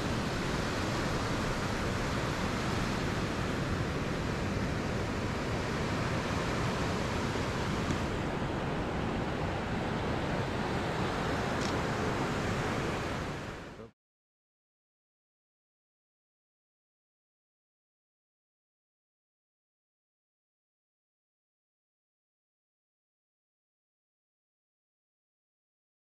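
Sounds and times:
surf washing onto sand: 0.0s - 13.8s
wind rumbling on microphone: 0.0s - 13.9s.

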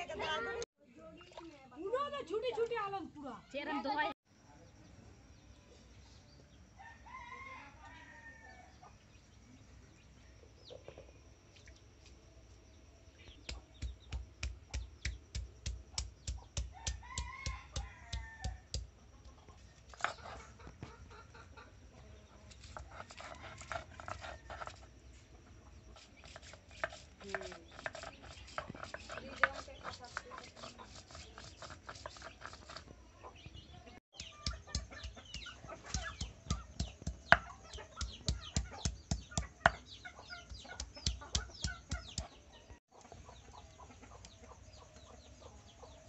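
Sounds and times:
stone pounding garlic on stone slab: 13.4s - 18.9s, 26.2s - 32.6s, 34.1s - 42.3s
stone scraping back and forth: 19.8s - 20.8s, 22.4s - 25.2s, 25.8s - 33.0s.

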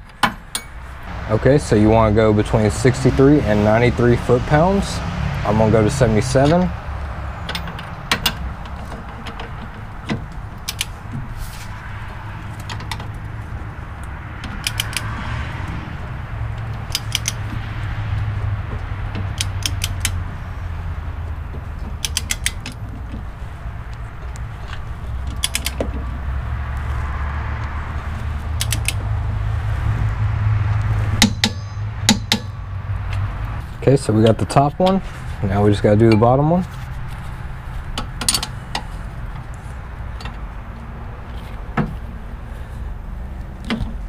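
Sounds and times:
low hum: 0.3s - 35.5s
torque wrench clicks: 10.6s - 10.9s, 14.6s - 15.1s, 16.9s - 17.4s, 19.4s - 20.2s, 22.0s - 22.8s, 25.4s - 25.8s, 28.6s - 29.0s.

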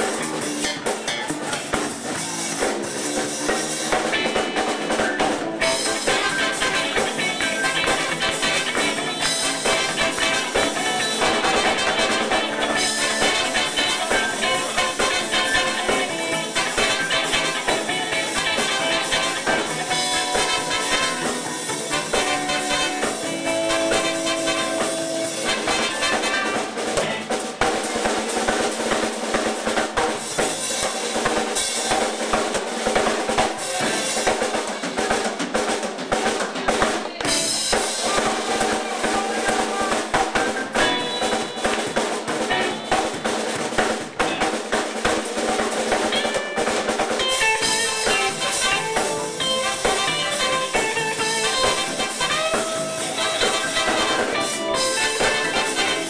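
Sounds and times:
live blues band playing: 0.0s - 56.0s
snare drum and cymbals: 0.0s - 56.0s.

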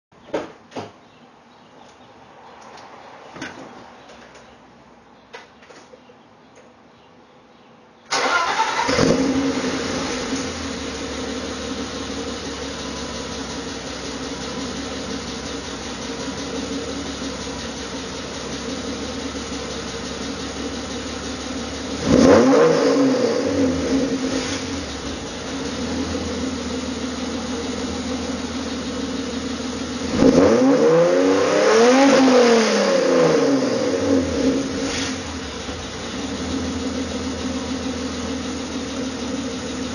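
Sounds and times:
car engine idling and revving: 8.2s - 39.9s.

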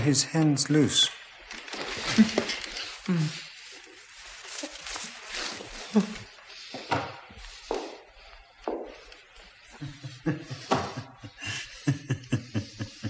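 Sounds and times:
heavy breathing: 2.0s - 4.0s, 5.2s - 13.0s.

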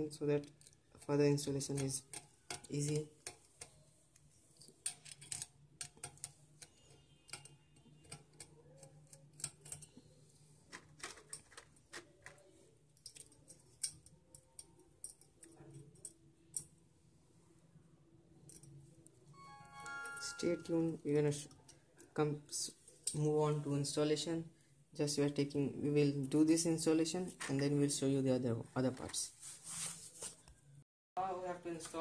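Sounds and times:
screwdriver clicks and ticks: 4.9s - 10.0s.

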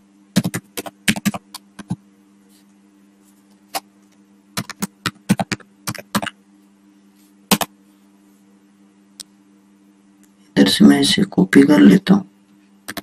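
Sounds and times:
faint steady hum: 0.0s - 13.0s
keyboard typing: 0.4s - 2.0s, 4.6s - 6.4s.

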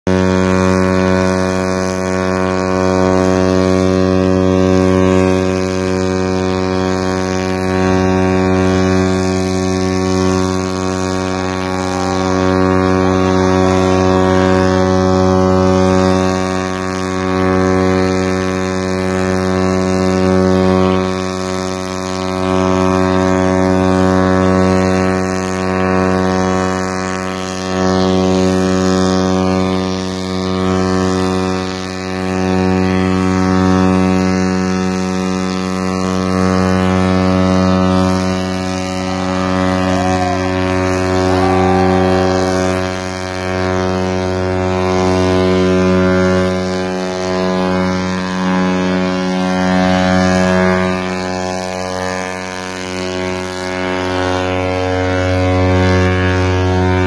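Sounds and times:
deep ship's horn: 0.1s - 57.0s.

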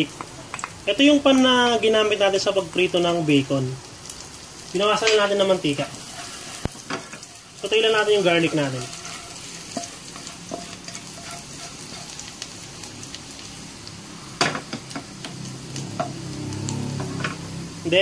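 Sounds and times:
garlic sizzling in oil: 0.0s - 18.0s
spatula scraping a wok: 5.7s - 13.0s.

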